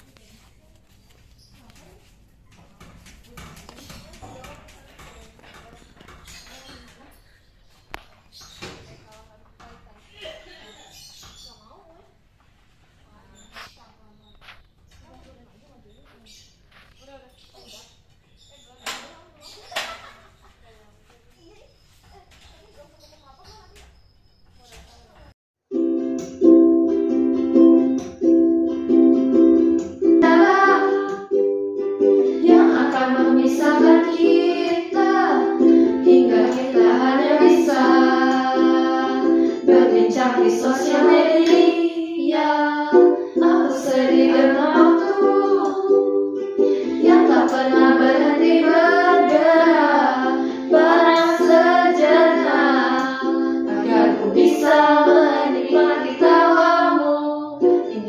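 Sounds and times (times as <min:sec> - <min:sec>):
ukulele strumming chords: 0:25.7 - 0:58.0
women singing together: 0:30.1 - 0:31.5, 0:32.3 - 0:58.0.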